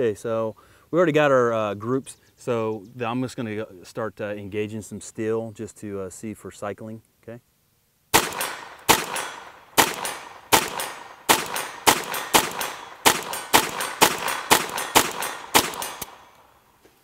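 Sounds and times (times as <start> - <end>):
pistol shots: 8.1 - 16.7
steel targets ringing: 8.3 - 16.7.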